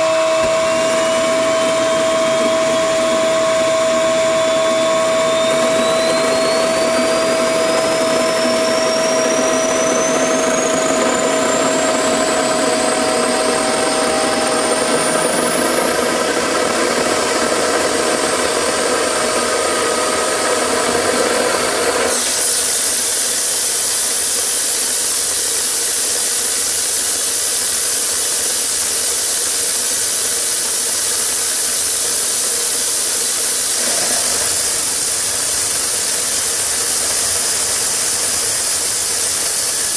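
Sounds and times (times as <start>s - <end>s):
low hum: 0.0s - 22.4s
loud rushing hiss: 0.0s - 39.9s
turbine whine rising: 0.0s - 39.9s.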